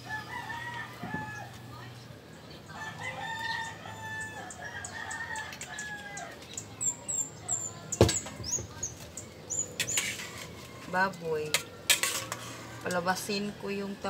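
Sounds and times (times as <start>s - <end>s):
rooster crowing: 0.0s - 1.6s, 2.7s - 6.4s
small birds chirping: 1.2s - 11.5s.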